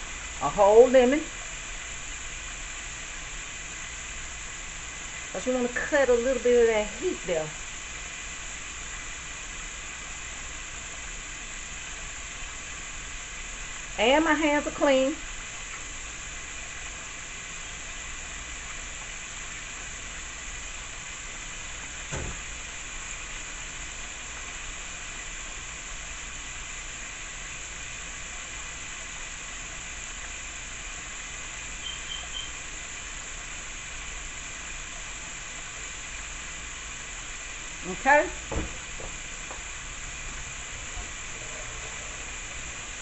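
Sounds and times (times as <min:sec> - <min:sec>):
food sizzling on stove: 0:00.0 - 0:43.0
knock: 0:22.1 - 0:22.4, 0:38.5 - 0:39.2.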